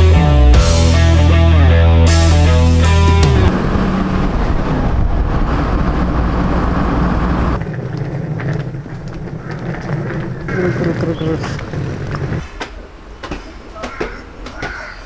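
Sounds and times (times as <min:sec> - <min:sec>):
vehicle road and wind rumble: 0:03.0 - 0:13.4.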